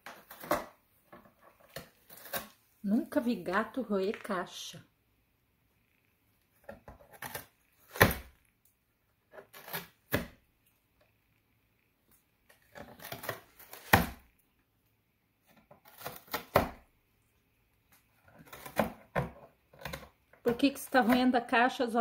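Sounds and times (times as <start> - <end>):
cat tearing cardboard: 0.0 - 2.7, 6.6 - 8.4, 9.2 - 10.4, 12.5 - 14.3, 15.4 - 16.9, 17.9 - 21.2.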